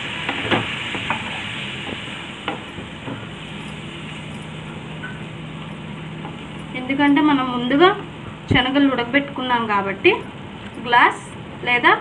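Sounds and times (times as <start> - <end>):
curry sizzling in a pan: 0.0 - 6.6.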